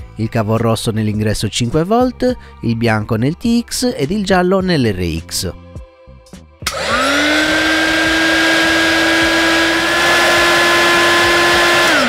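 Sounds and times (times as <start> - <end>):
heat gun fan whine: 6.6 - 12.0.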